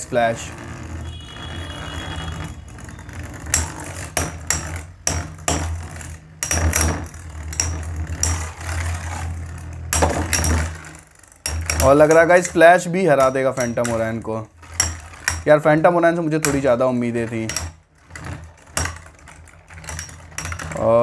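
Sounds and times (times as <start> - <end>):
spinning tops whirring: 0.0 - 21.0
metal tops clacking: 1.9 - 21.0.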